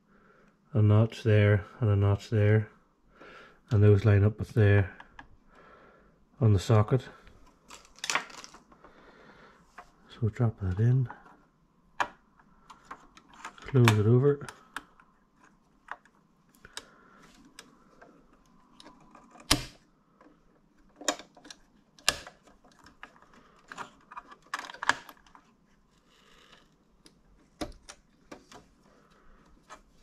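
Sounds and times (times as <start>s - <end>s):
hands clicking and tapping computer parts: 12.0s - 25.5s.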